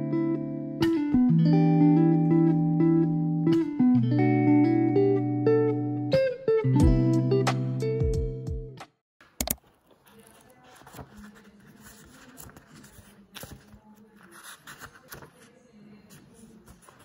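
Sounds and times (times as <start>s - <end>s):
guitar background music: 0.0s - 9.0s
sharp click: 9.2s - 9.6s
book pages flipped: 9.2s - 17.0s.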